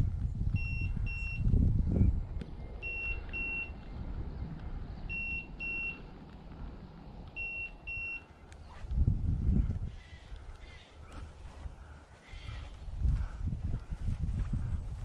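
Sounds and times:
low rumble: 0.0s - 15.0s
high double beep: 0.6s - 1.4s, 2.8s - 3.8s, 5.1s - 6.0s, 7.4s - 8.3s.

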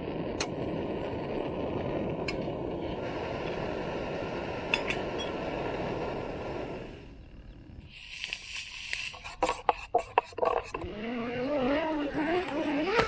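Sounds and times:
gas stove burner hissing: 0.0s - 9.4s.

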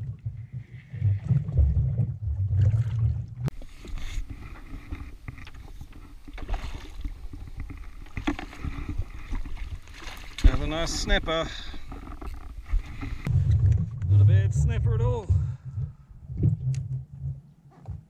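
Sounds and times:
water lapping at hull: 0.0s - 13.8s
small splashes: 5.4s - 11.1s
wind rumble on microphone: 11.8s - 18.0s.

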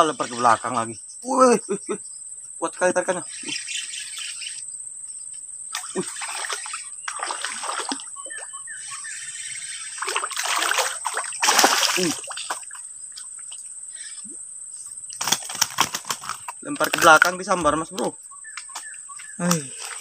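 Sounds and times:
fish splashing at water surface: 5.8s - 8.1s, 9.9s - 12.8s.

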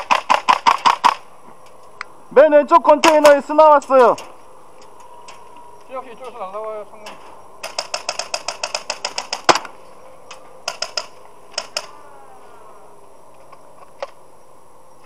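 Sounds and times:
airsoft gun firing: 0.0s - 1.2s, 7.6s - 9.8s, 10.6s - 11.9s.

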